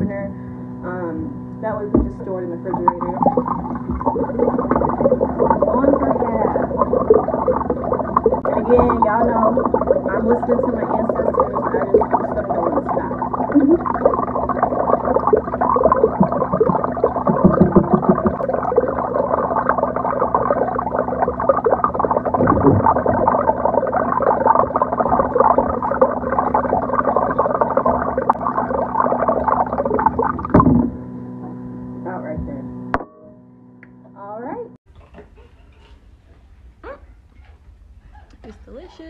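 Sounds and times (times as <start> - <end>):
liquid glugging from a bottle: 2.0 - 31.0.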